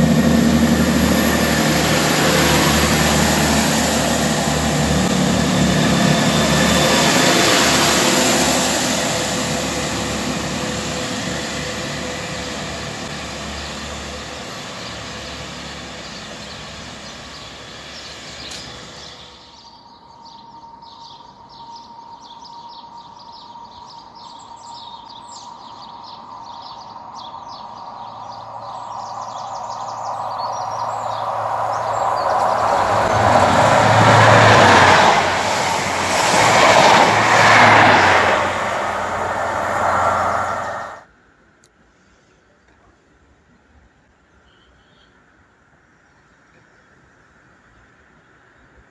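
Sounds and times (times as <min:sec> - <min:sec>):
loud rushing sound: 0:00.0 - 0:13.2, 0:27.0 - 0:41.1
train approaching: 0:00.0 - 0:41.1.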